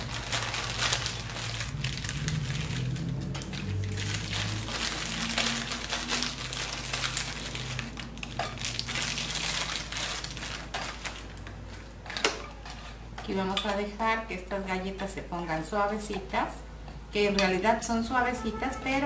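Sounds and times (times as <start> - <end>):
plastic packet crinkling: 0.0 - 12.7.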